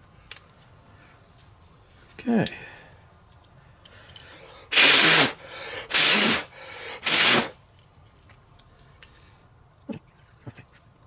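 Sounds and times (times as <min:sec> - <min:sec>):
spray bursts: 0:04.7 - 0:07.6.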